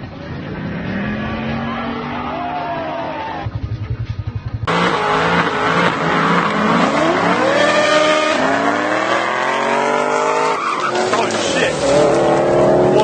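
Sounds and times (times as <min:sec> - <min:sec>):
car engine accelerating hard: 0:04.4 - 0:13.0.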